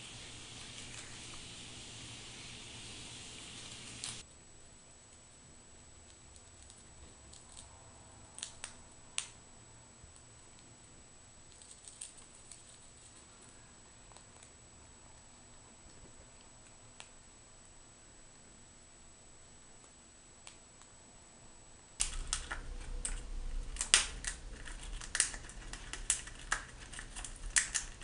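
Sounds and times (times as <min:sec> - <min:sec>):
squirrel gnawing food: 0:05.9 - 0:09.4, 0:11.4 - 0:17.3, 0:22.0 - 0:28.0.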